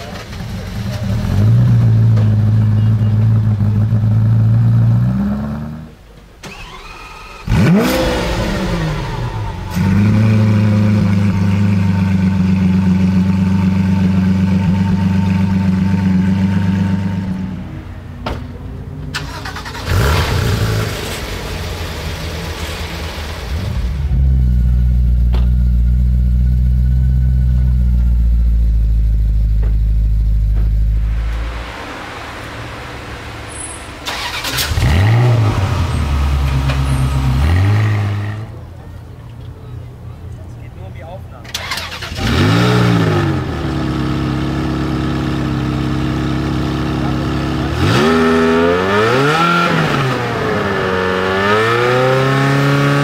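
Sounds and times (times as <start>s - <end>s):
car engine starting and revving: 0.0s - 18.1s, 19.0s - 38.7s, 41.5s - 53.0s
sports car engine idling: 9.0s - 17.4s, 20.8s - 31.8s.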